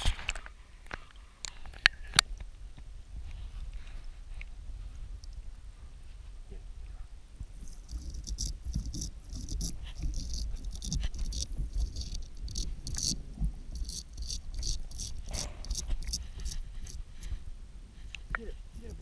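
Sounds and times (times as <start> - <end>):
paws scraping rock underwater: 7.6 - 17.4.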